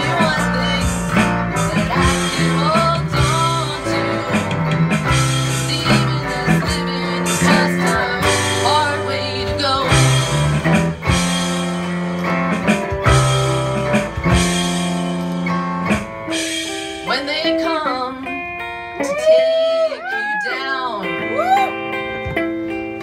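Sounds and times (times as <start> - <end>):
drum hits: 0.0 - 8.7, 9.5 - 17.0
acoustic guitar: 0.0 - 23.0
bass line: 0.0 - 23.0
electric guitar: 0.0 - 23.0.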